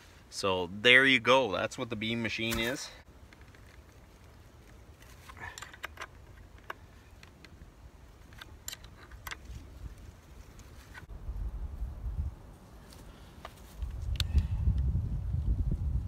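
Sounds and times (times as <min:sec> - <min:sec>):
light metallic clicks and rattles: 0:03.2 - 0:09.7.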